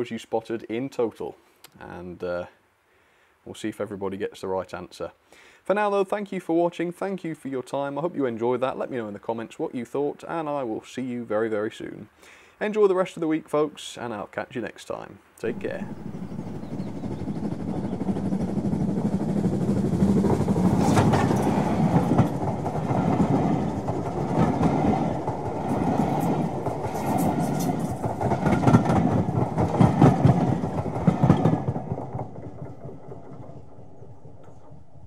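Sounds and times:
train wheels clattering over rails: 15.5 - 35.0.

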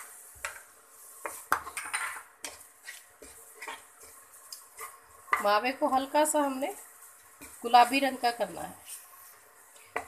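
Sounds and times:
wooden spatula scraping bowl: 0.0 - 6.1
stirring in frying pan: 0.0 - 10.0.

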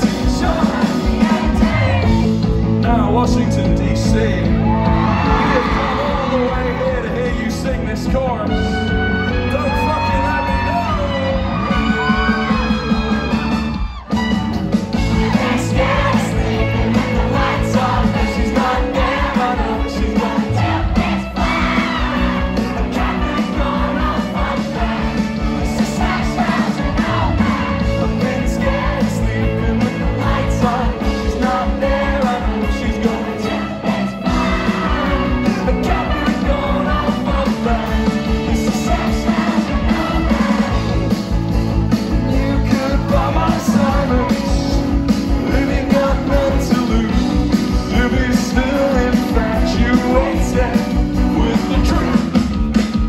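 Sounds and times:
bass guitar: 0.0 - 53.0
drum kit: 0.0 - 53.0
person singing: 42.1 - 52.4.

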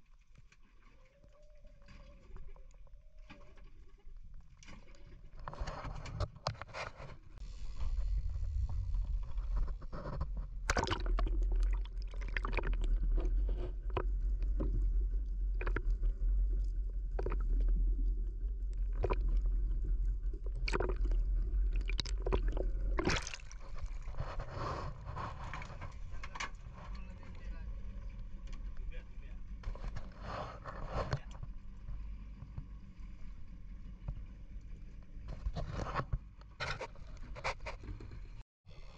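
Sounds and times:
water and boat noise: 0.0 - 38.9
muffled underwater rumble: 0.9 - 38.9
sharp underwater clicks and knocks: 9.1 - 17.9, 18.6 - 24.4.

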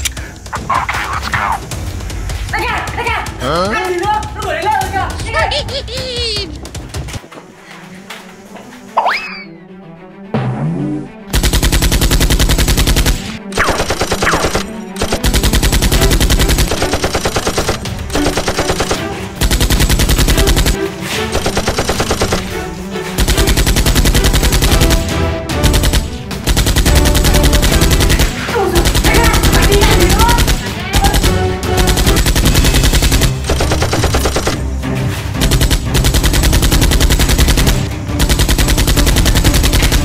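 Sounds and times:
automatic gunfire bursts: 11.3 - 22.5, 23.2 - 34.6, 35.5 - 40.0.

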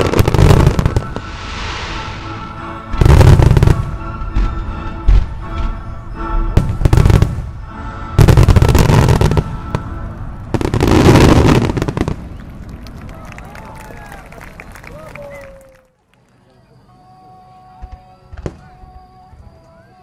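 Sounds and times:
fireworks booming and crackling: 0.0 - 5.8, 6.6 - 7.6, 8.2 - 12.9
music with long held chords: 0.0 - 12.3, 16.6 - 20.0.

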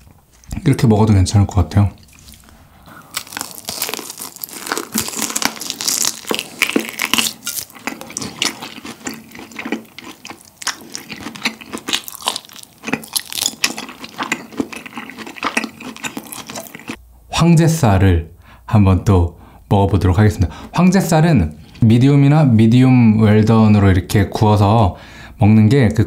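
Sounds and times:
crunchy biting and chewing: 2.2 - 17.0.

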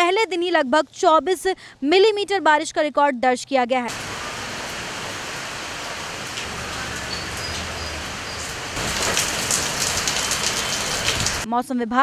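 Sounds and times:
rain falling on leaves: 3.9 - 11.5.

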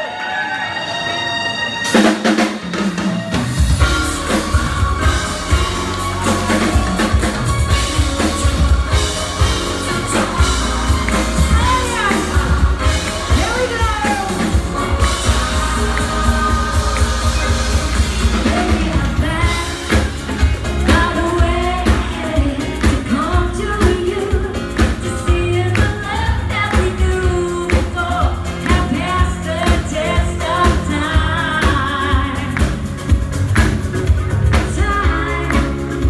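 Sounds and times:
electric guitar: 1.8 - 36.0
drum beat: 2.0 - 21.4
heavy bass: 3.0 - 36.0
backing singers: 3.3 - 32.8
woman singing lead: 3.8 - 33.2, 34.4 - 36.0.

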